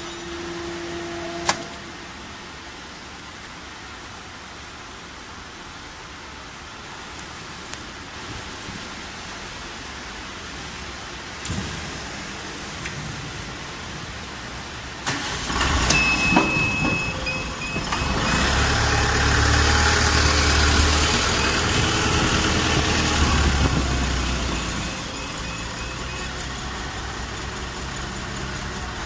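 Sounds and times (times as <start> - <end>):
pulsing high whine: 0.0 - 2.8.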